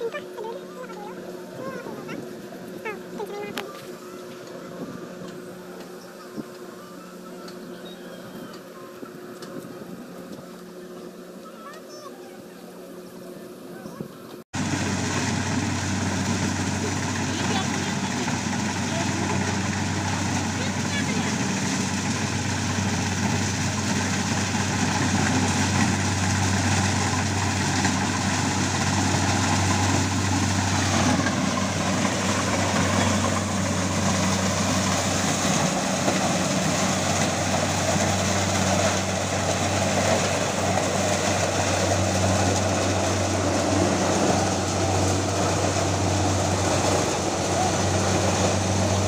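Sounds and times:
working machinery noise: 0.0s - 49.0s
combine harvester engine hum: 14.6s - 49.0s.

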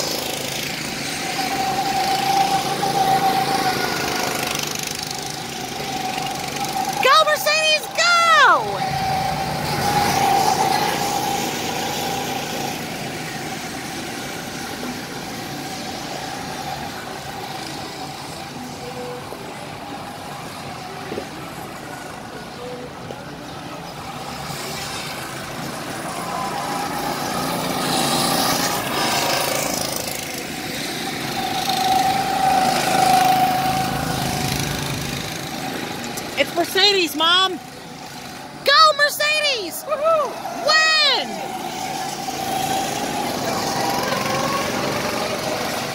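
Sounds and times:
go-kart engines droning: 0.0s - 45.9s.

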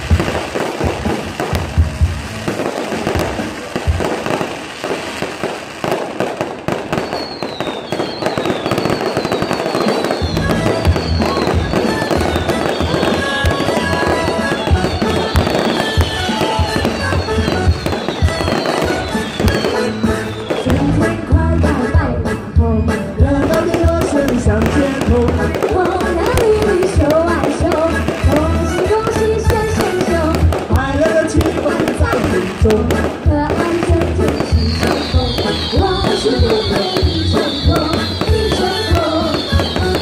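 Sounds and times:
music with low beat: 0.0s - 4.4s
fireworks crackling and popping: 0.0s - 40.0s.

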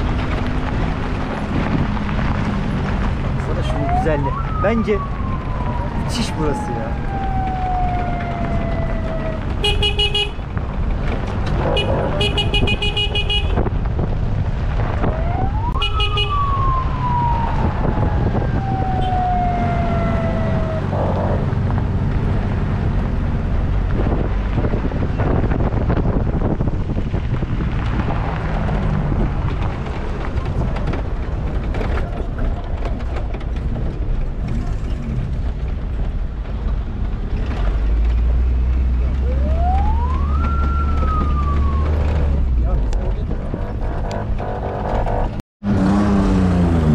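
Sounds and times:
siren-like falling tones: 3.5s - 9.6s, 15.0s - 21.6s, 39.2s - 42.5s
vehicle horns honking: 9.6s - 10.4s, 11.6s - 13.7s, 15.8s - 16.4s, 43.6s - 45.4s.

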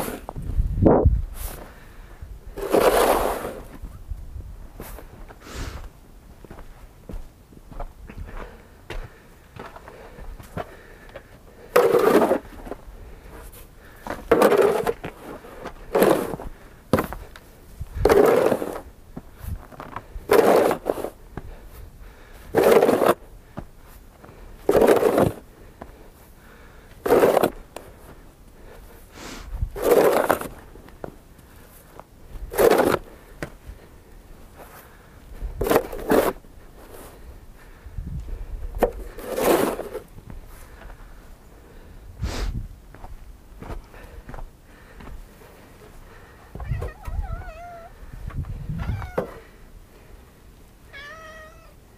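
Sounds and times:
snow shovel scraping: 0.0s - 0.3s, 2.6s - 3.8s, 11.8s - 12.6s, 14.3s - 16.4s, 18.0s - 18.9s, 20.3s - 21.2s, 22.5s - 23.2s, 24.7s - 25.4s, 27.0s - 27.6s, 29.2s - 30.6s, 32.5s - 33.1s, 35.6s - 37.1s, 39.1s - 40.1s.

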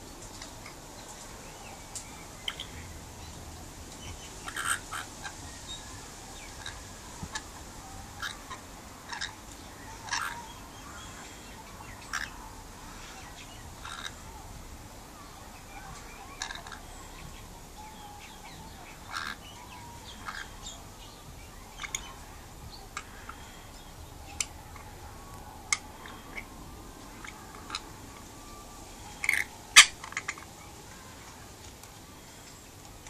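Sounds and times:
parrot chirping and clicking: 21.8s - 22.1s.

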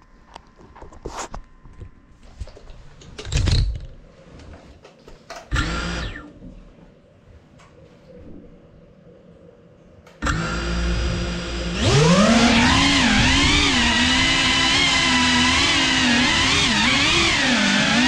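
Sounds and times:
drone motors whining: 5.5s - 6.4s, 10.2s - 18.0s.

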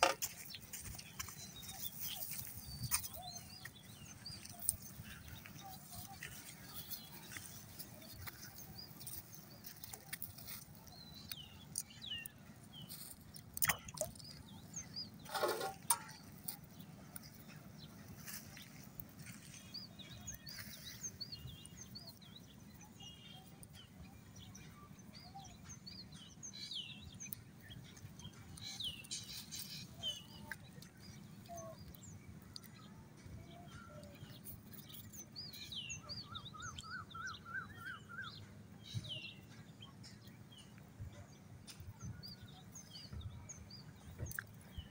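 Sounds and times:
birds chirping: 0.0s - 44.9s
handling noises: 15.2s - 17.4s.

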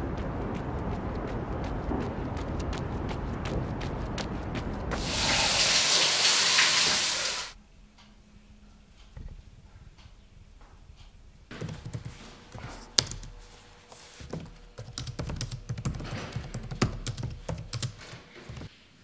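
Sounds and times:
laptop keyboard typing: 11.5s - 18.7s.

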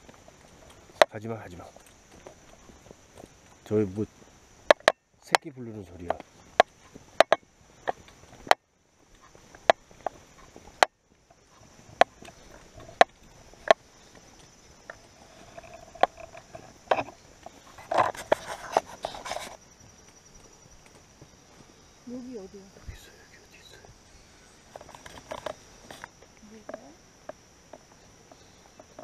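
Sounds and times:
trekking poles clicking: 0.0s - 3.9s, 4.7s - 21.1s, 24.7s - 26.4s
footsteps on dirt trail: 0.0s - 29.0s
high insect buzz: 0.0s - 29.0s.

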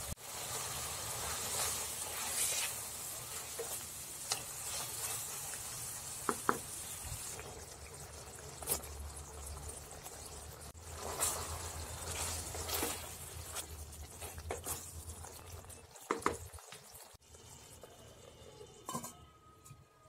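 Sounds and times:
gravy sizzling and bubbling: 0.0s - 19.1s
wooden spatula stirring: 1.1s - 6.6s, 10.8s - 17.1s.

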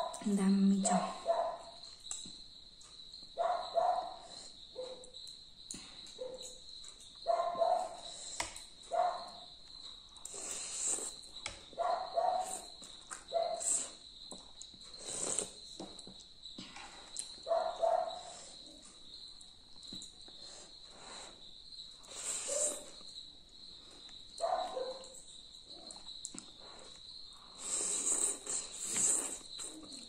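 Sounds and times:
person slurping and chewing noodles: 10.2s - 11.3s, 12.4s - 16.1s, 25.9s - 30.0s.

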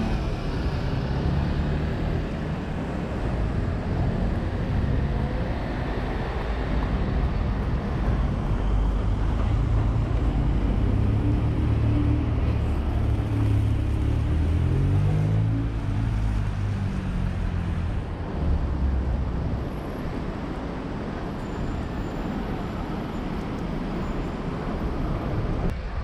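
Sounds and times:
passing traffic: 0.0s - 26.0s.

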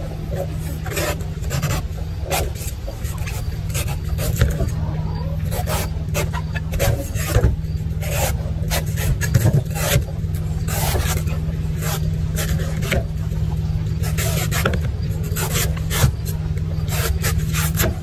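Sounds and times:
low steady hum: 0.0s - 18.0s
knife cutting coconut husk: 16.9s - 18.0s.

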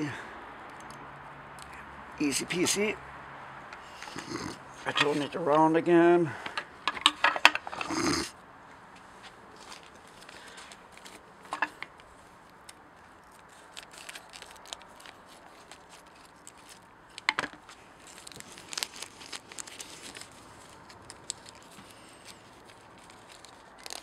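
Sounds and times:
paper packet tearing and crinkling: 13.2s - 24.0s.

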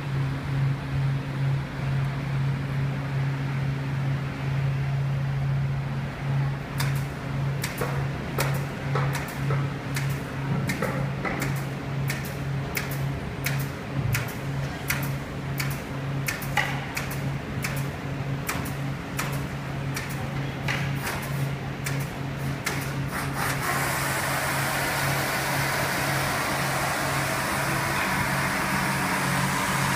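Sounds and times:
low factory hum: 0.0s - 29.9s
pneumatic staple gun firing: 21.0s - 29.9s.

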